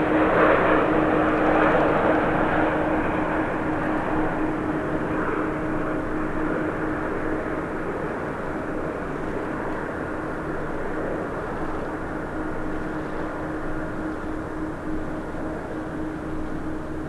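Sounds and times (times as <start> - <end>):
jet engine rumble and whine: 0.0 - 17.0.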